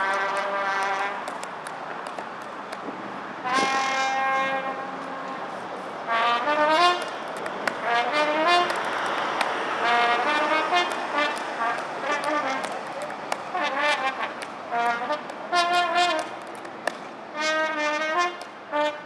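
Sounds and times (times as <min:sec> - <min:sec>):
solo trumpet playing: 0:00.0 - 0:01.3, 0:03.4 - 0:05.4, 0:06.1 - 0:07.1, 0:07.8 - 0:08.8, 0:09.7 - 0:12.9, 0:13.5 - 0:16.3, 0:17.3 - 0:19.0.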